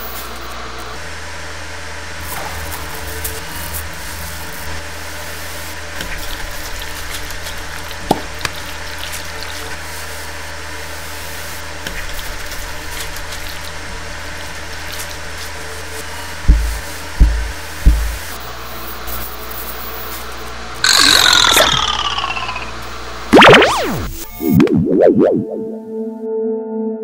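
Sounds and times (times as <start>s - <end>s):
water splashes and drips: 6.0s - 9.8s, 11.9s - 15.4s
low hum: 20.8s - 26.2s.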